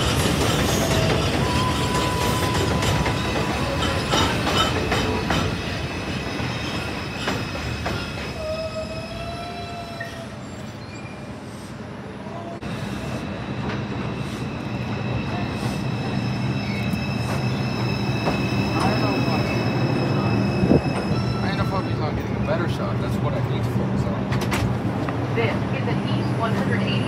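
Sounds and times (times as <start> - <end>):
high wheel squeal: 0.0 - 11.5, 14.0 - 22.7
subway train rumbling and clattering: 0.0 - 27.0.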